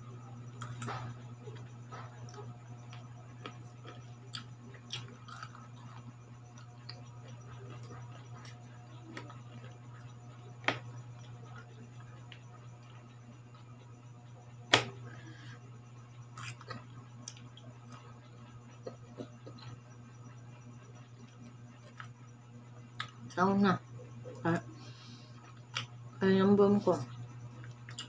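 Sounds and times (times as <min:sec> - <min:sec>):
steady low hum: 0:00.0 - 0:28.0
quiet chewing: 0:00.6 - 0:10.1, 0:22.9 - 0:23.3, 0:24.3 - 0:25.9, 0:27.6 - 0:28.0.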